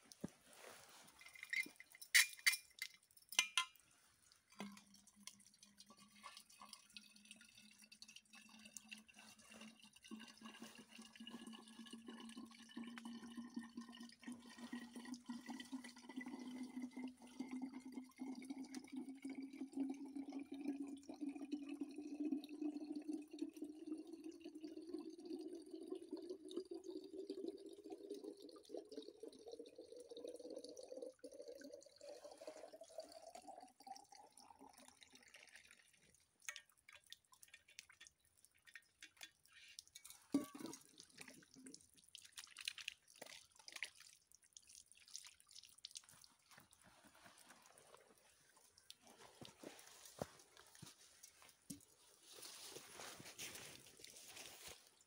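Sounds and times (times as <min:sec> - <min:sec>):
water filling metal bottle: 0:00.0 - 0:44.0, 0:45.9 - 0:55.0
metal bottle clinking on stones: 0:01.2 - 0:03.8.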